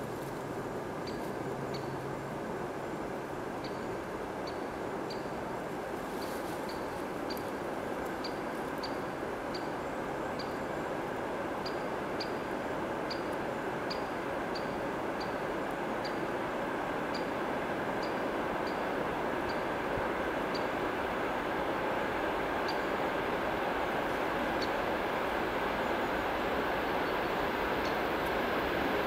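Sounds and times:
train rumble: 12.6 - 29.0.

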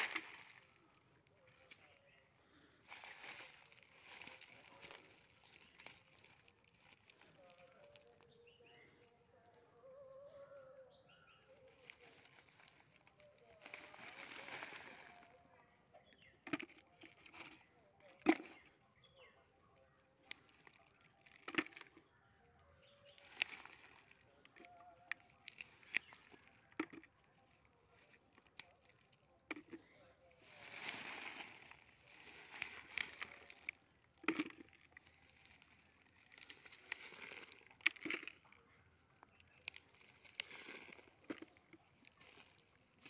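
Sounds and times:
faint high chirps: 0.0 - 37.7
soil and roots rustling: 0.0 - 43.0.

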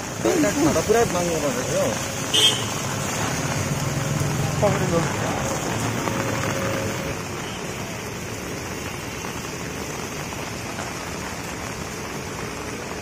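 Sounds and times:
rain falling on pavement: 0.0 - 13.0.

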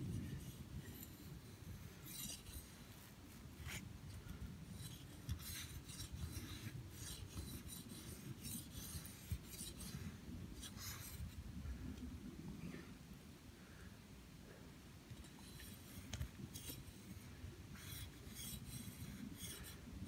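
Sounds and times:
knife scraping wood: 0.1 - 11.4, 15.2 - 19.8.

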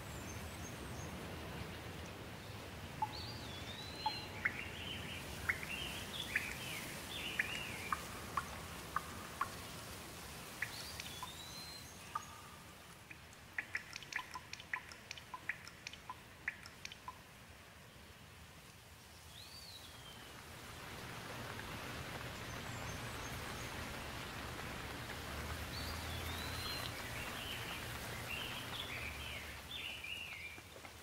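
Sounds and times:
steady rain: 0.0 - 31.0
bird singing: 3.0 - 9.6, 10.6 - 17.2, 25.7 - 30.6
water drops plopping: 13.1 - 17.2.

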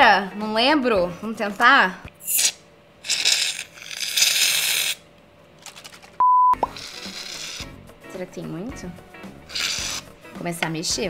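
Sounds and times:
aerosol can spraying foam: 3.1 - 5.0, 6.7 - 7.8, 9.4 - 10.2.

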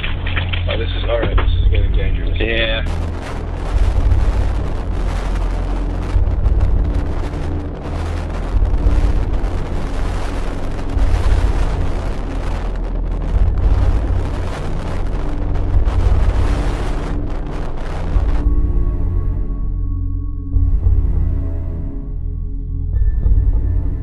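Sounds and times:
heavy surf rushing: 0.0 - 18.8
wind buffeting microphone: 0.0 - 19.2.

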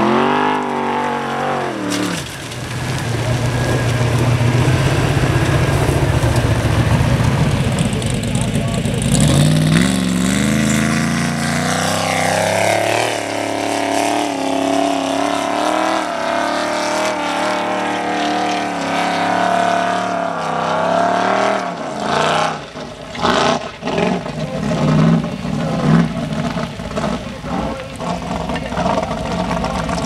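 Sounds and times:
buggy engine revving at full throttle: 0.0 - 30.0.

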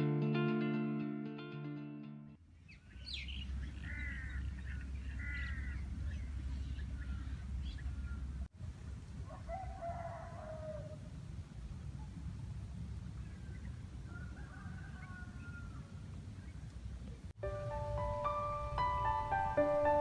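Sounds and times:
guitar music: 0.0 - 2.4, 17.4 - 20.0
birds chirping: 2.6 - 8.5
rooster crowing: 9.3 - 11.1, 14.1 - 16.0.

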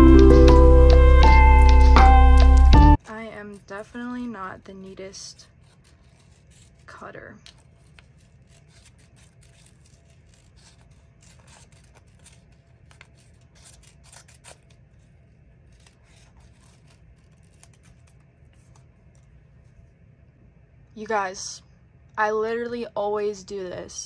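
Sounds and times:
paper clicking and rustling: 7.4 - 14.8.

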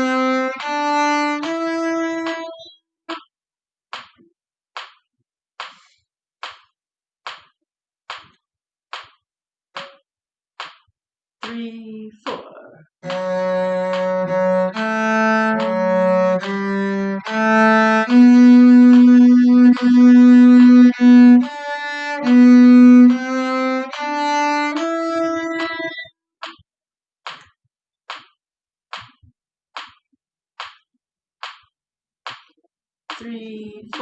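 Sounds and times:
cello playing slow hymn: 0.0 - 2.6, 13.0 - 26.0
metronome clicking: 0.0 - 3.2, 9.8 - 10.0, 13.0 - 26.6.

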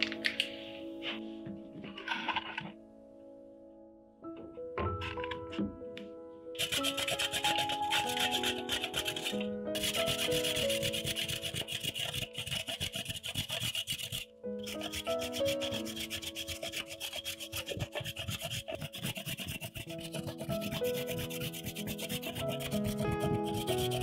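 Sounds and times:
soft background music: 0.0 - 24.0
chocolate scraping on grater: 6.6 - 24.0.

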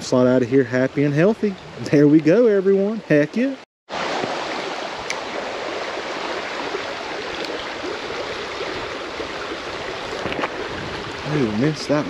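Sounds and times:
stream water rushing over rocks: 3.9 - 12.0.

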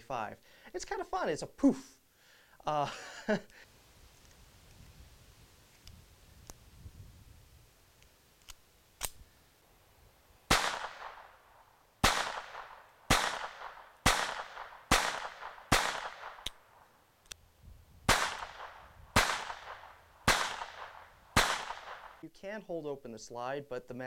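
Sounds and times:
small clicks: 8.0 - 9.2
pistol shots: 10.5 - 16.6, 18.1 - 22.2.

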